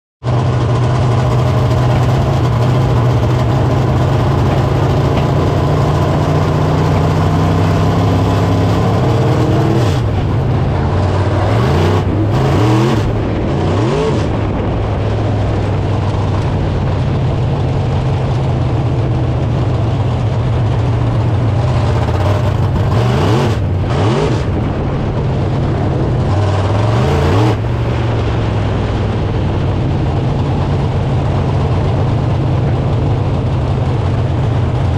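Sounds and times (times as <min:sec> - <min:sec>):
race car engine droning: 0:00.2 - 0:34.9.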